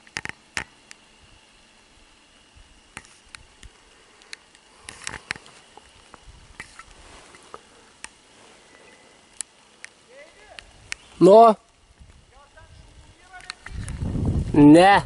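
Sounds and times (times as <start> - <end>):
footsteps through dry grass: 4.8 - 8.8, 13.4 - 14.7.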